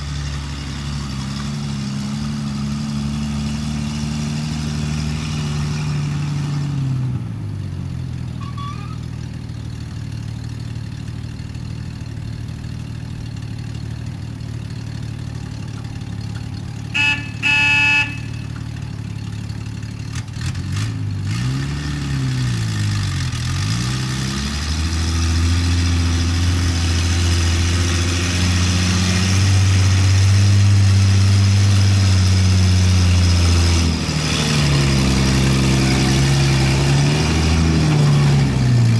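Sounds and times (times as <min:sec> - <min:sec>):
truck engine running: 0:00.0 - 0:38.9
short horn honks: 0:08.4 - 0:09.1, 0:16.9 - 0:18.6.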